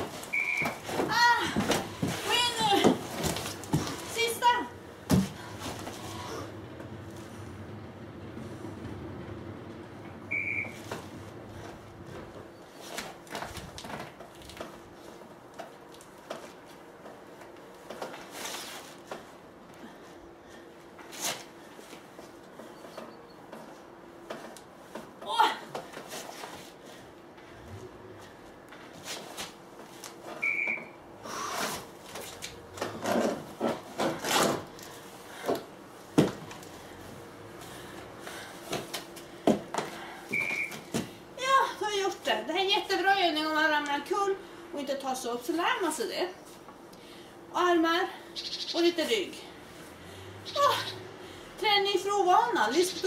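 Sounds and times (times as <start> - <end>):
short high beep: 10.3 - 10.8.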